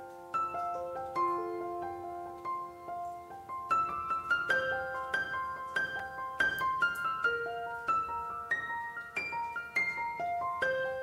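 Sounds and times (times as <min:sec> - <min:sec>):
slow gentle piano melody: 0:00.0 - 0:11.0.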